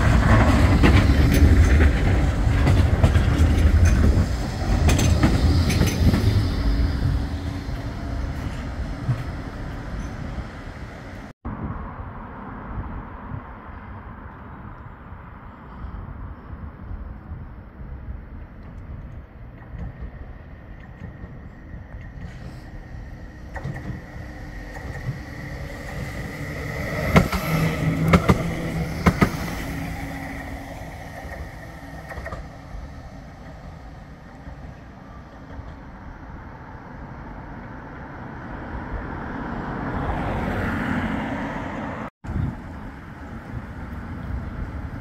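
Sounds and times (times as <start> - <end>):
tram motor whine: 0.0 - 11.3, 18.6 - 38.8, 42.3 - 45.0
wheels clacking on rails: 0.0 - 11.3, 18.3 - 36.4
passing road traffic: 0.0 - 45.0
tram passing: 0.0 - 45.0.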